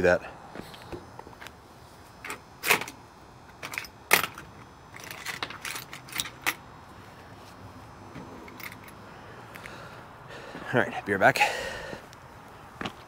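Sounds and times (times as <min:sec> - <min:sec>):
metal tools clinking: 0:03.6 - 0:06.6, 0:08.4 - 0:09.0.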